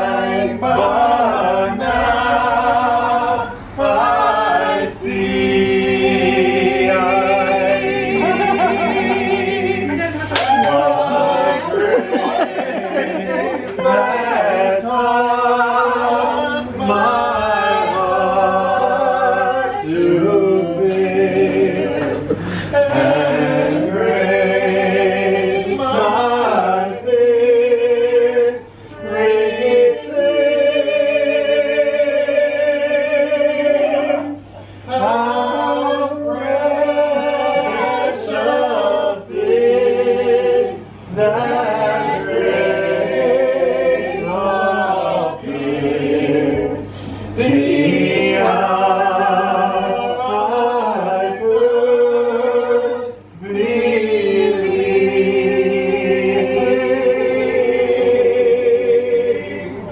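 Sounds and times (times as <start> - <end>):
group singing unaccompanied: 0.0 - 59.9.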